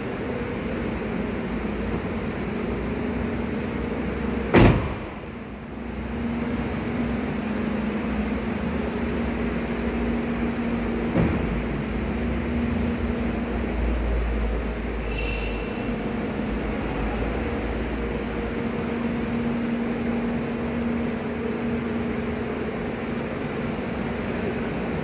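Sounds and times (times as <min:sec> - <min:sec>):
van door shutting: 0:04.4 - 0:05.3.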